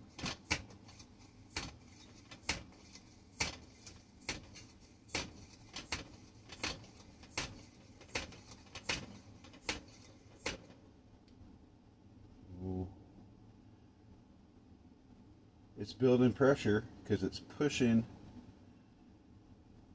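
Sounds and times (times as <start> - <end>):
hand air pump strokes: 0.0 - 10.7.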